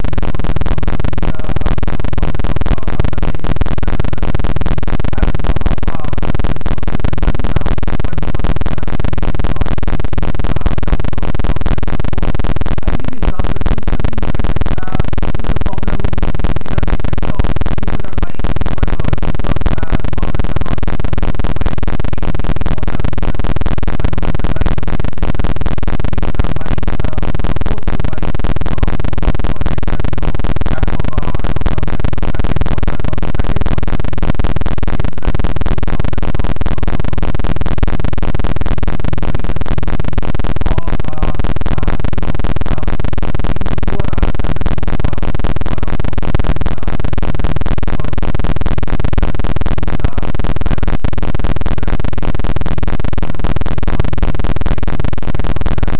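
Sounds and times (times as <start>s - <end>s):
loud distorted noise: 0.0s - 55.9s
steady tone: 0.0s - 55.9s.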